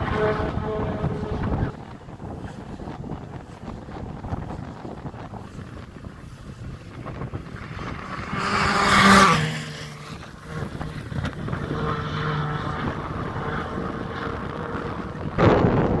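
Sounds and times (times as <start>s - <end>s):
rally car passing at speed: 0.0s - 2.8s, 6.8s - 16.0s
distant car engine: 0.0s - 3.8s, 6.9s - 16.0s
loud rush of noise: 0.0s - 16.0s.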